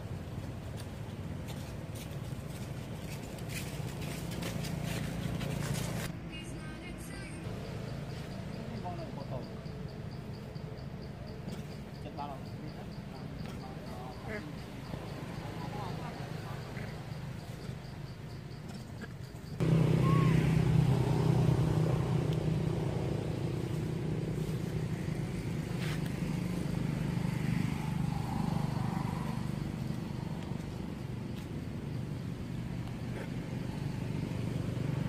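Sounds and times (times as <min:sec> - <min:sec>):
vehicle engine humming: 0:00.0 - 0:35.0.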